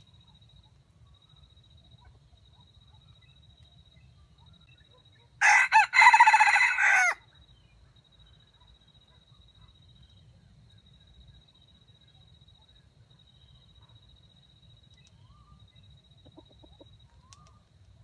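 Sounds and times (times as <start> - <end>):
rooster crowing: 5.4 - 7.2.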